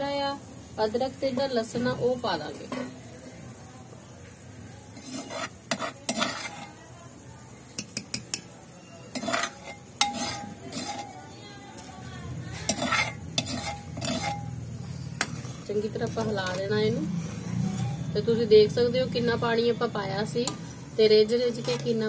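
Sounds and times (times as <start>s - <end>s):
low bubbling of simmering food: 0.0s - 22.0s
metal spoon scraping cookware: 5.0s - 6.8s, 9.1s - 11.2s, 12.5s - 14.6s, 21.4s - 22.0s.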